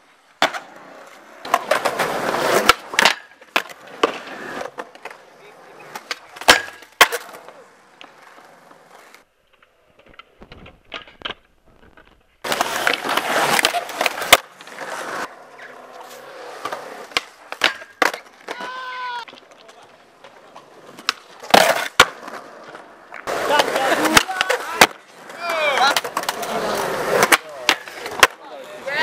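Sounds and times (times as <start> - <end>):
skateboard wheels rolling on concrete: 0.0 - 29.0
skateboard deck clacks: 0.4 - 8.9, 9.5 - 29.0
skateboard sliding on metal rail: 6.3 - 19.4.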